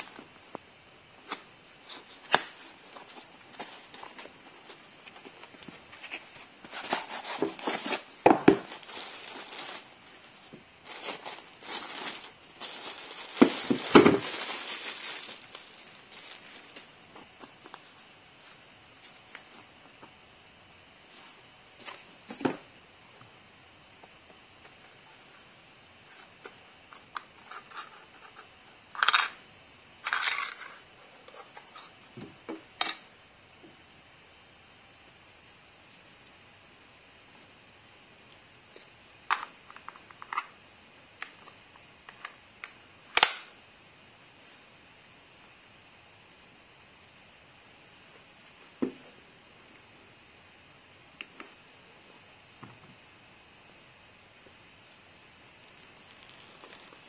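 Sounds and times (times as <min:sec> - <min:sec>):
plastic and cardboard crinkling: 0:01.2 - 0:19.7, 0:55.6 - 0:57.0.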